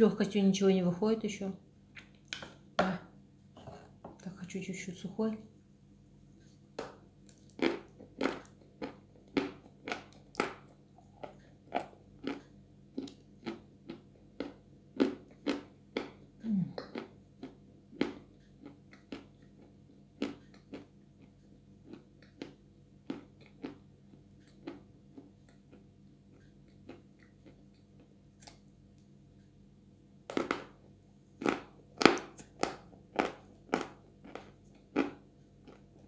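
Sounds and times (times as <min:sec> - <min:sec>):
chewing clay: 0:07.3 - 0:28.6, 0:31.4 - 0:36.0
crunchy bites: 0:30.3 - 0:30.8, 0:31.4 - 0:35.9.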